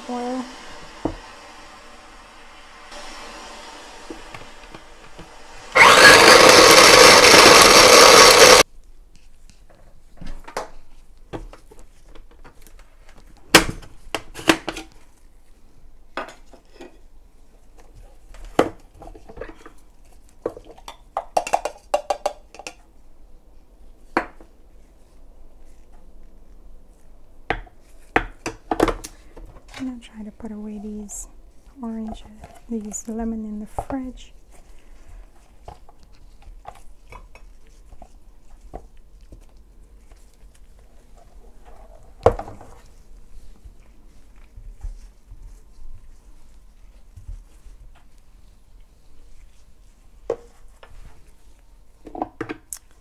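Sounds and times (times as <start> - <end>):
electric food chopper running: 0.0 - 8.6.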